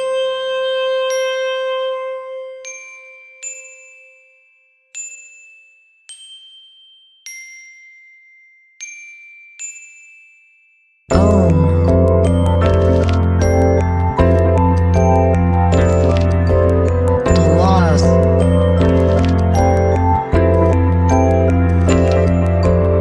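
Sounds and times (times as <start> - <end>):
high bell-like notes: 2.6 - 23.0
ambient pop music: 11.1 - 23.0.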